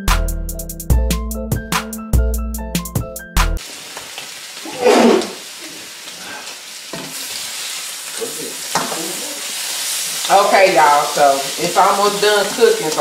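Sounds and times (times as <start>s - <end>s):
background music: 0.0s - 3.6s
chicken sizzling in a skillet: 3.6s - 13.0s.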